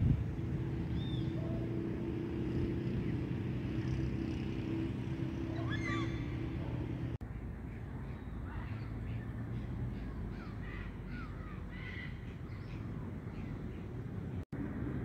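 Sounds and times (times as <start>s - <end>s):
macaws calling harshly: 5.5s - 6.6s, 8.1s - 13.6s.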